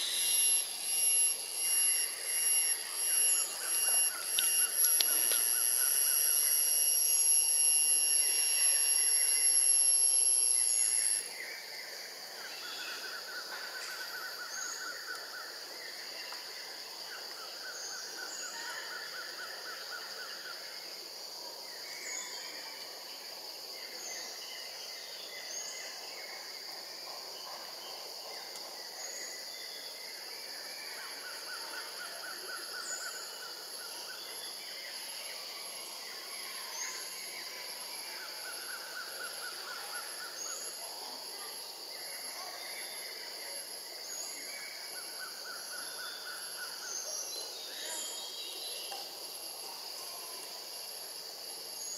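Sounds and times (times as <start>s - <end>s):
high-pitched insect whine: 0.0s - 51.9s
quiet insect hum: 0.0s - 51.9s
rapid insect trills: 0.0s - 51.9s.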